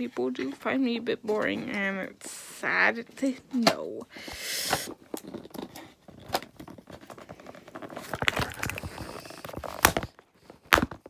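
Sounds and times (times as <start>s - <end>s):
cardboard packaging rustling: 6.1s - 10.2s.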